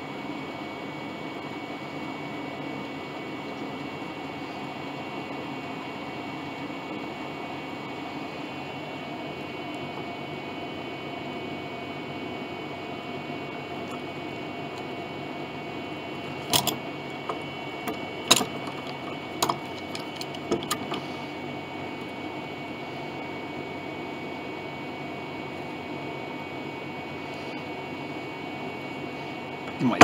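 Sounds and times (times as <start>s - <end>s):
steady hum: 0.0s - 30.0s
metal clamp clicks and knocks: 16.4s - 17.4s, 18.3s - 21.0s.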